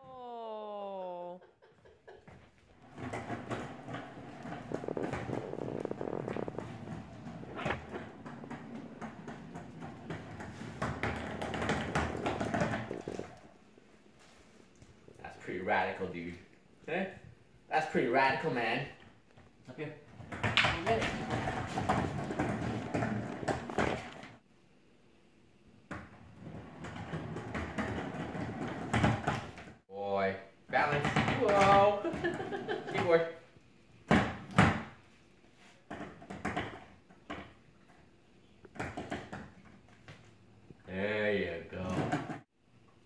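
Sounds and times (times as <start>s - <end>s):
skateboard wheels rolling on wood floor: 1.7s - 13.6s, 18.3s - 24.4s, 25.9s - 29.8s, 30.8s - 33.3s, 34.0s - 42.5s
skateboard knocks: 3.0s - 13.3s.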